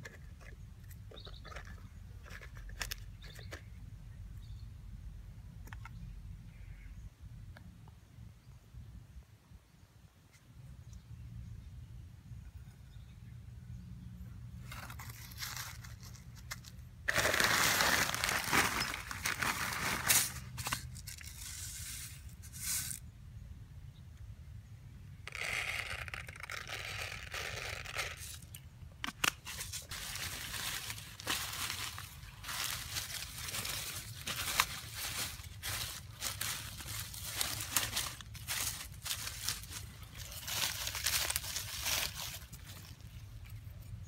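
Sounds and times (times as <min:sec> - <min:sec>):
hands rustling dry leaves and plastic: 0:14.6 - 0:23.1, 0:25.3 - 0:44.0.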